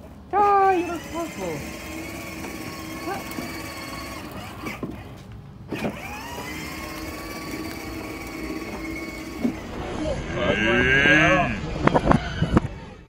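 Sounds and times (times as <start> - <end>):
electric toy truck motor whining: 0.4 - 9.8.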